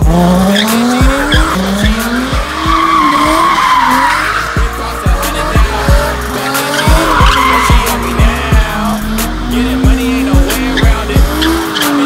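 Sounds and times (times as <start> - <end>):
booming bass kicks: 0.0 - 2.6
car tyres screeching: 0.0 - 12.0
hip-hop track: 0.0 - 12.0
synth melody: 0.0 - 12.0.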